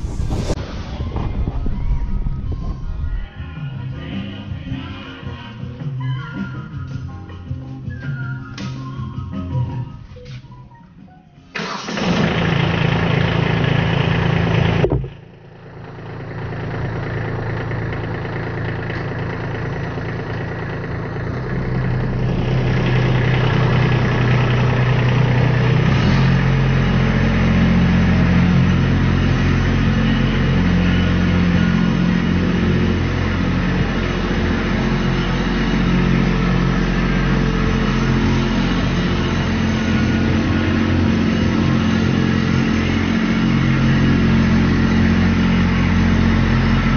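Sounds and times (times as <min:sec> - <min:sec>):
tractor diesel engine running: 0:11.5 - 0:46.9.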